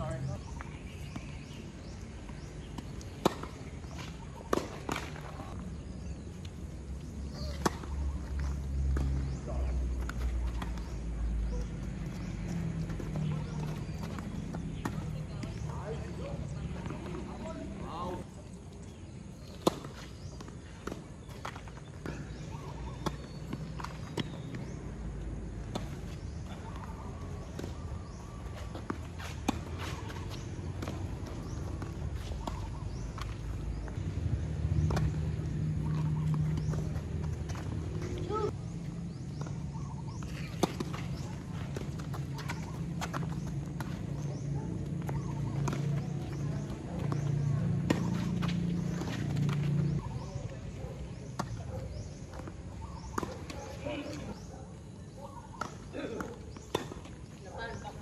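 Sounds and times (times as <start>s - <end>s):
ball bouncing on hard court: 1.1s - 5.2s, 25.5s - 50.3s
racquet striking tennis ball: 44.8s - 50.3s.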